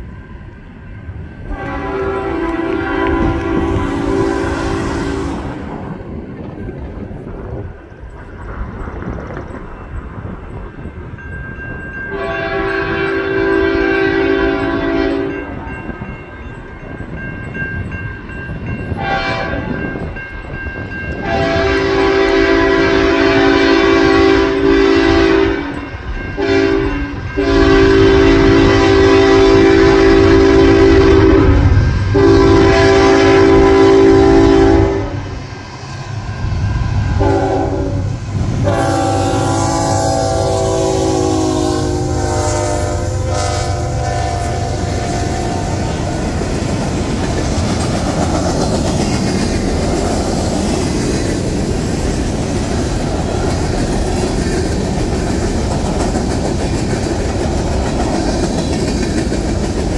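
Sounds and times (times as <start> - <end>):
diesel locomotive rumble: 0.0 - 59.9
locomotive air horn blasts: 1.5 - 5.5, 12.1 - 15.5, 19.0 - 19.8, 21.2 - 35.4, 37.1 - 46.2.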